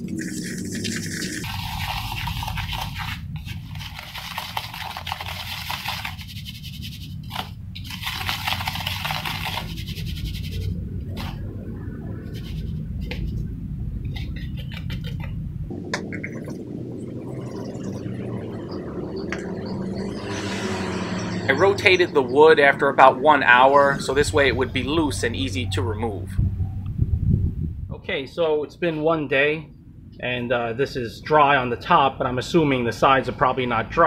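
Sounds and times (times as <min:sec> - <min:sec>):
wooden stick scraping wet cement: 0:00.0 - 0:11.4, 0:14.1 - 0:15.4
steady low hum: 0:00.0 - 0:34.0.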